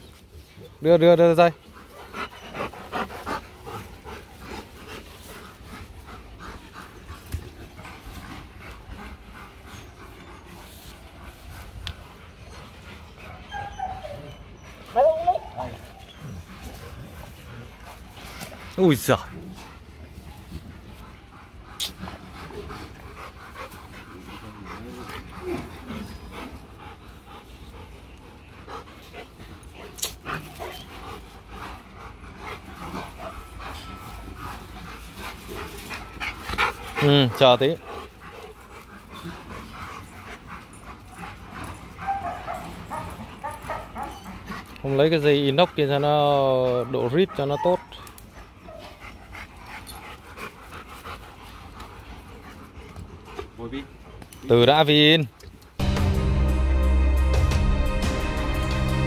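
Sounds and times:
dog panting: 0.0s - 55.8s
dog whining: 12.4s - 17.0s.

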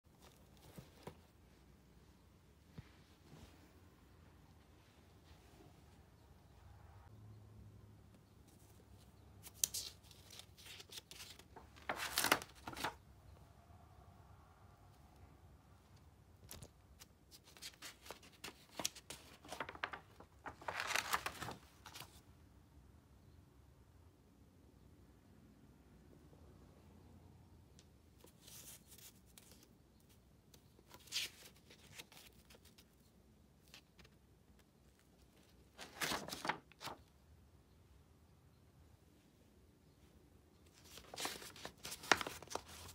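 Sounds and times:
paper pages rustling: 0.1s - 1.3s, 9.4s - 13.0s, 16.4s - 22.2s, 30.8s - 33.0s, 33.6s - 37.0s, 40.7s - 42.9s.

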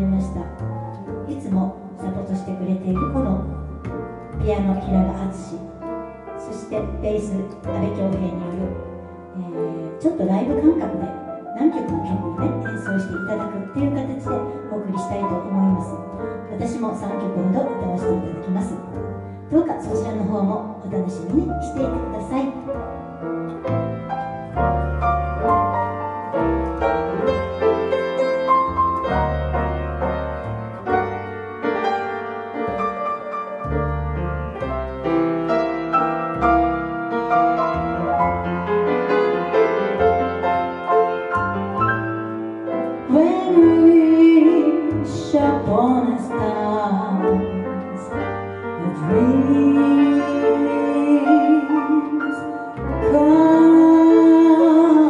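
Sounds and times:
jazz piano: 0.0s - 55.0s
plucked upright bass: 0.0s - 55.0s
woman singing with vibrato: 48.8s - 52.5s, 53.1s - 55.0s.

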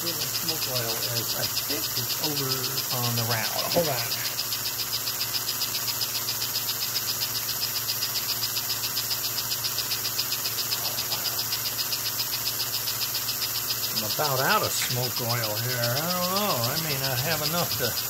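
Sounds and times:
low electrical hum: 0.0s - 18.0s
rapid mechanical ticking: 0.0s - 18.0s.

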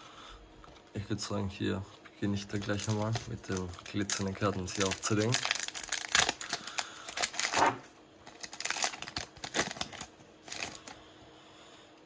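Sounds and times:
cards and foil wrapper rustling: 2.2s - 11.0s.

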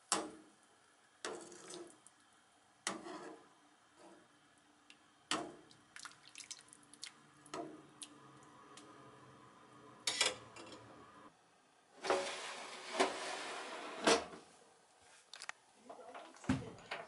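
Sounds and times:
ladle splashing broth: 5.3s - 8.2s
small drips: 5.6s - 8.2s.

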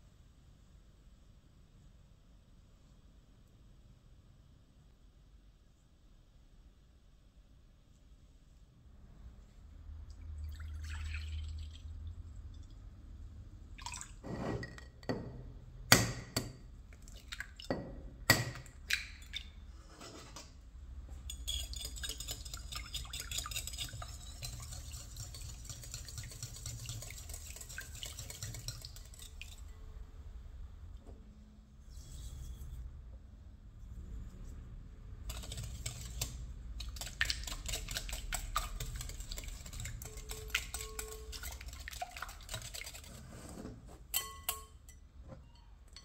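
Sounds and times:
milk pouring into glass bowl: 10.2s - 12.8s
whisk clinking against glass bowl: 21.3s - 29.8s, 35.3s - 43.1s, 44.1s - 46.0s.

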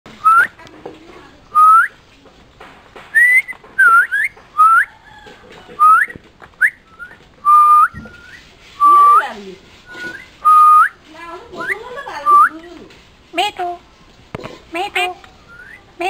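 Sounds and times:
bird whistling with upward sweep: 0.2s - 0.5s, 1.6s - 1.9s, 3.2s - 4.9s, 5.8s - 9.2s, 9.9s - 11.0s, 15.4s - 15.8s.

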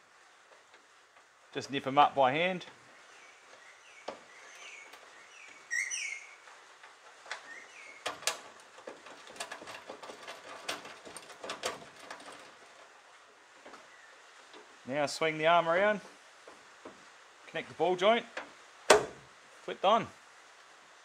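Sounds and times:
birds chirping: 1.6s - 9.2s, 13.5s - 16.5s.

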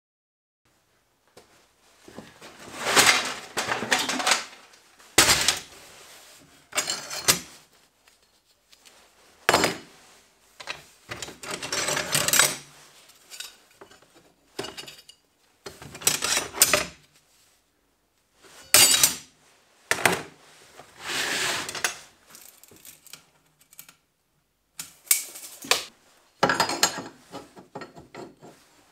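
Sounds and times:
steel bars clanking in plastic basket: 2.8s - 4.6s.

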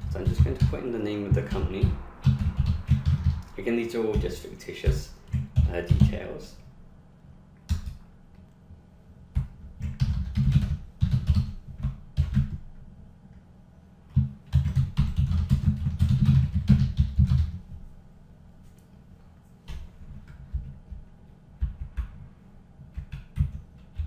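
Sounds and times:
computer keyboard typing: 0.0s - 3.5s, 4.1s - 6.3s, 9.3s - 12.6s, 14.1s - 17.6s, 22.9s - 24.0s.

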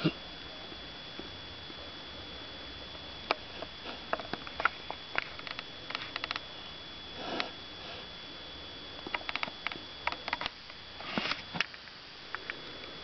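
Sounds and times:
small clicks: 4.2s - 6.5s, 9.0s - 10.8s
cat wheezing snort: 7.1s - 8.1s
cat snuffling: 7.2s - 8.1s.

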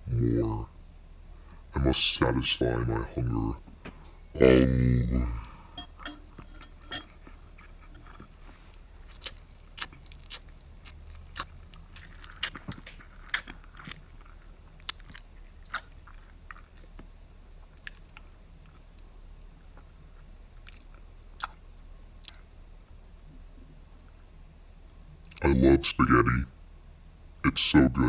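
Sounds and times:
person chewing spaghetti: 5.8s - 21.6s.

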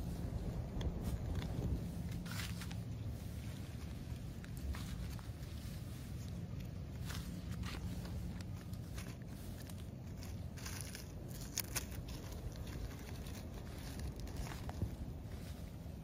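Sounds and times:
leaf litter rustling and crackling: 0.0s - 16.0s
twigs snapping: 6.3s - 15.0s.

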